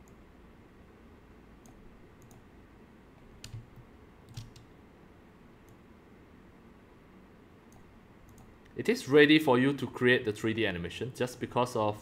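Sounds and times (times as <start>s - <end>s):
computer mouse clicking: 1.6s - 2.5s, 3.4s - 4.7s, 7.7s - 8.8s.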